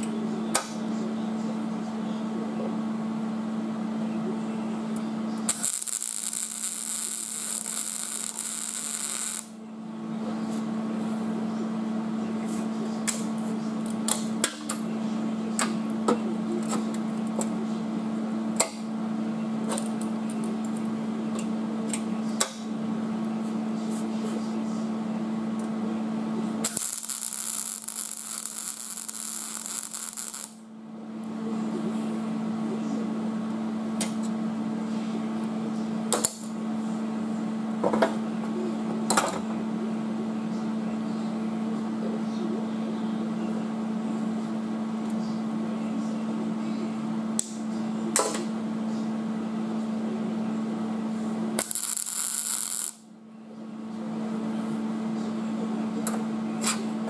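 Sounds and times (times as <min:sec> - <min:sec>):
electrical hum: 0:00.0 - 0:57.0
welder arc crackling: 0:05.4 - 0:09.6, 0:26.6 - 0:30.6, 0:51.6 - 0:53.0.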